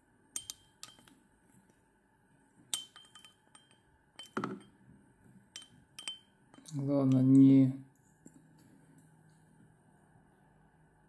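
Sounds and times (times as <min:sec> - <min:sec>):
metal tools clinking and tapping: 0:00.4 - 0:01.1, 0:02.7 - 0:04.8, 0:05.5 - 0:07.4.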